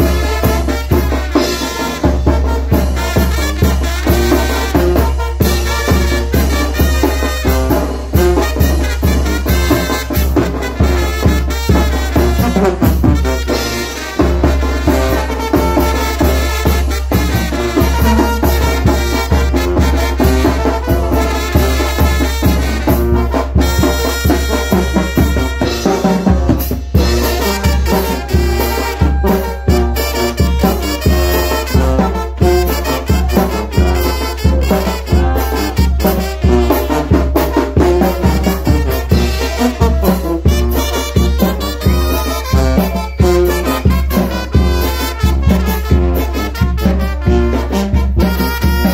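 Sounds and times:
drums and cymbal beat: 0.0 - 48.9
trumpets playing tune: 0.0 - 48.9
sousaphone bass line: 23.5 - 44.8
strong drum strokes: 24.8 - 44.5.

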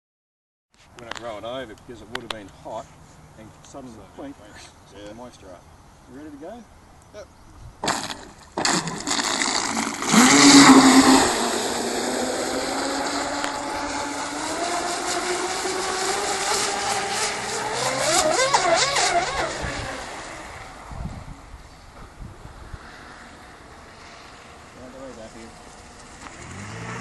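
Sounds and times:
electric motor whine: 10.0 - 20.8.

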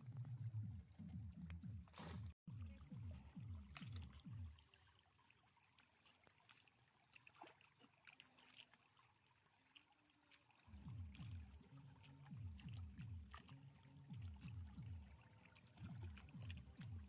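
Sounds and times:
deep repeated falling beat: 0.0 - 4.6, 10.7 - 11.6, 12.2 - 15.2
water trickling and splashing: 0.0 - 17.0.

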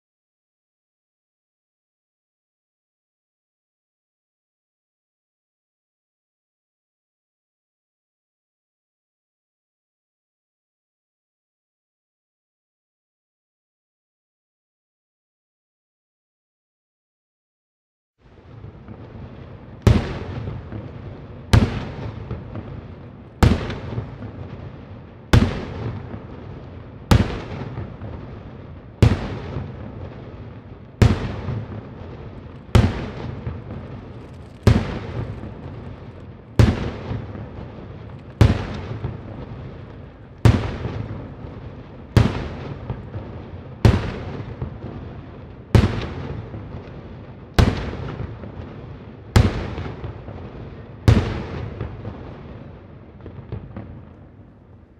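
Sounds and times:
fireworks bangs with echo: 18.3 - 54.9.

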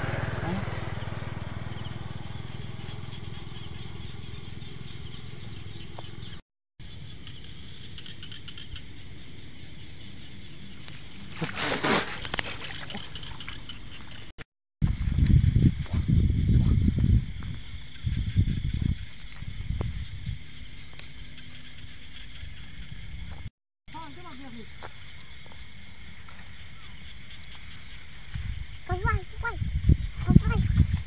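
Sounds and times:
insects whining and chirping: 0.0 - 11.6, 12.2 - 31.0
rustling of dry brush and grass: 11.0 - 13.4.

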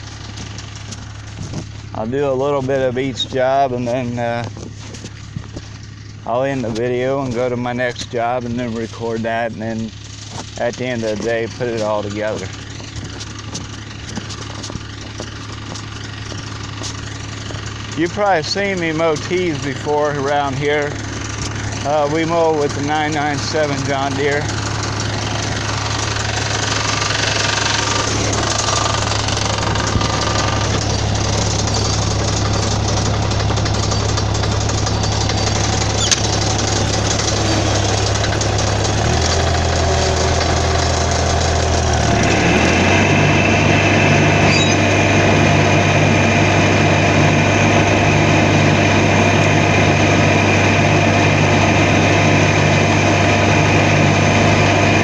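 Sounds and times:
mower diesel engine running: 0.0 - 55.0
high whine: 43.0 - 55.0.

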